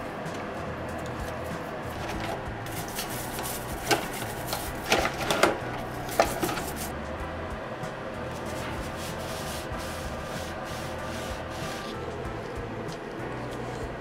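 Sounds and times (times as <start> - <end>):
rag rubbing: 1.2 - 7.0, 8.3 - 13.0.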